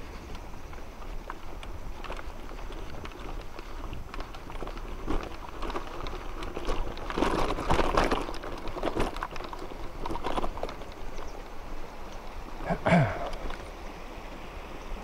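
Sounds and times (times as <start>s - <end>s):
bike frame rattling and knocking: 0.6s - 11.9s.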